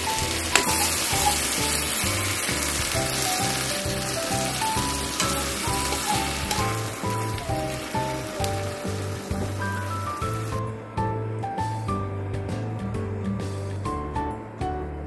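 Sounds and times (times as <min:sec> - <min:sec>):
peppers sizzling in a frying pan: 0:00.0 - 0:10.6
background music with steady beat: 0:00.0 - 0:15.0.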